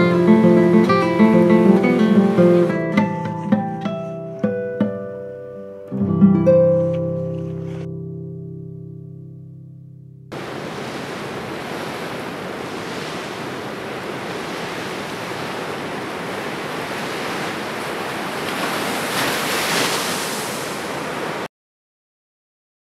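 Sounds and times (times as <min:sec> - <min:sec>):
ocean surf breaking on beach: 0:00.0 - 0:03.5, 0:10.3 - 0:21.5.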